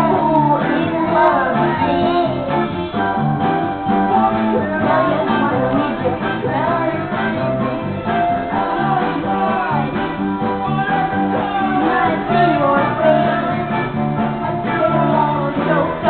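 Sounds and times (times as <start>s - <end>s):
girl singing: 0.0s - 2.5s, 4.1s - 7.8s
rock guitar playing: 0.0s - 16.0s.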